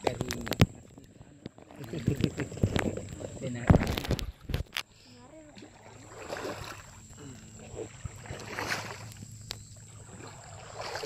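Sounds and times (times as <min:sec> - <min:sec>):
paddle splashing in water: 0:05.5 - 0:07.0, 0:07.6 - 0:11.0.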